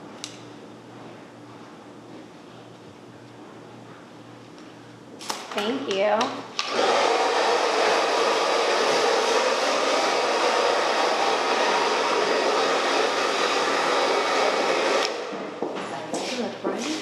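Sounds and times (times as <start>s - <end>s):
hair dryer blowing: 6.6s - 15.5s.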